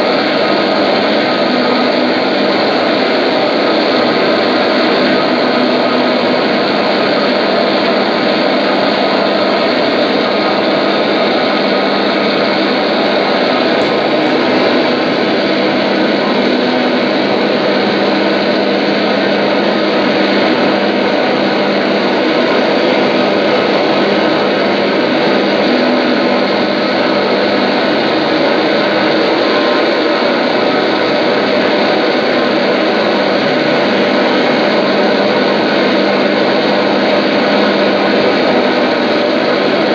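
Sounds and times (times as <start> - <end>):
loud noise drone: 0.0 - 39.9.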